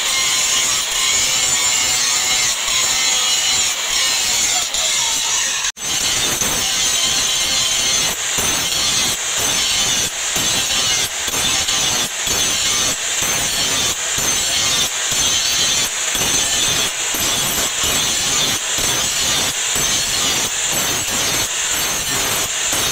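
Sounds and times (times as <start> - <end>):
angle grinder grinding steel: 0.0 - 22.9.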